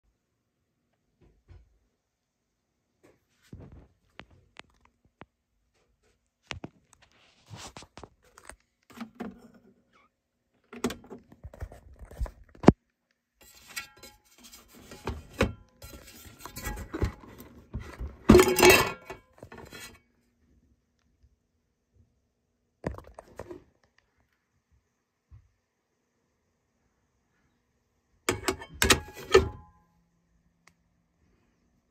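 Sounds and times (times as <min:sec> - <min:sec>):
metal platter clattering: 0:18.2 - 0:19.2.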